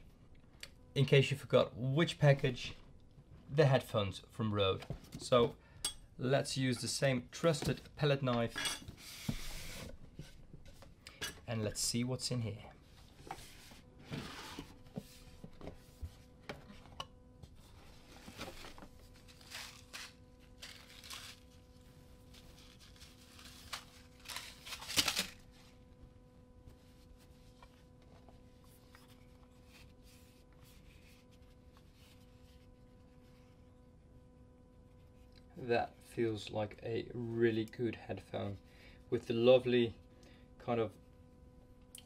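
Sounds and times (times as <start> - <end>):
faint steady hum: 0.0 - 42.0
cardboard box rustling and scraping: 13.3 - 16.8, 17.5 - 21.4.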